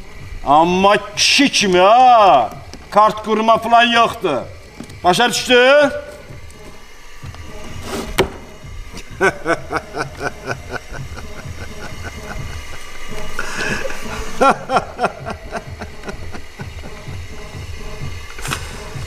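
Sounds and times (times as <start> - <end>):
breathy hiss: 0.0 - 19.0
man laughing: 8.9 - 17.3.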